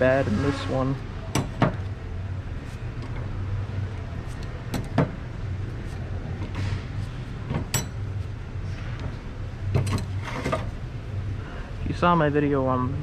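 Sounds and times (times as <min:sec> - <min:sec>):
steady low hum: 0:00.0 - 0:13.0
metal clutch plates clinking: 0:04.2 - 0:05.2, 0:07.4 - 0:08.2.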